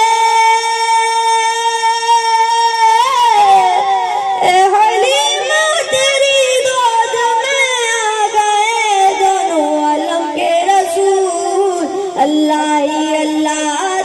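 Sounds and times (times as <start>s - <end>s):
boy singing unaccompanied: 0.0s - 14.0s.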